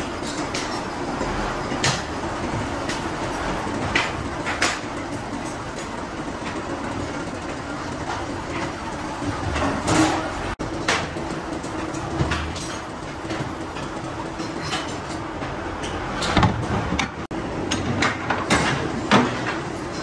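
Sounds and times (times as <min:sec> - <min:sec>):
workshop machine hum and hiss: 0:00.0 - 0:20.0
metal clanks and scrapes: 0:07.6 - 0:17.1.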